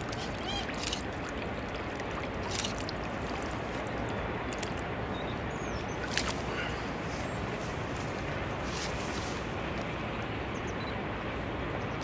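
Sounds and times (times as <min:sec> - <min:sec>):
water splashes: 0:00.0 - 0:10.0
faint high chirp: 0:10.6 - 0:11.0.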